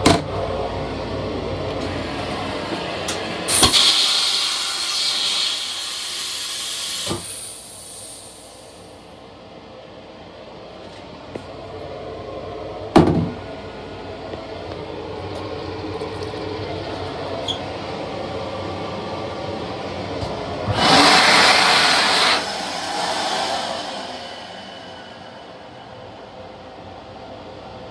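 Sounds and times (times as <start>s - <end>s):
hand dryer blowing: 1.8s - 8.8s, 20.5s - 25.9s.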